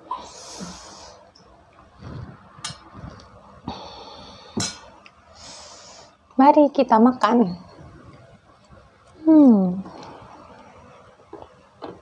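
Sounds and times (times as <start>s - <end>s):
breathy hiss: 0.1s - 1.3s, 3.6s - 6.2s.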